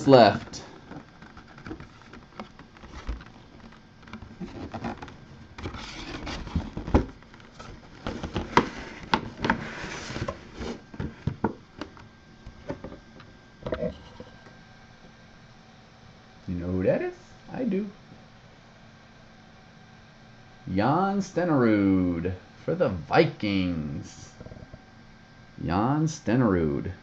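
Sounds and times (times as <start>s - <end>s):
cardboard and paper rustling: 0.1s - 13.9s.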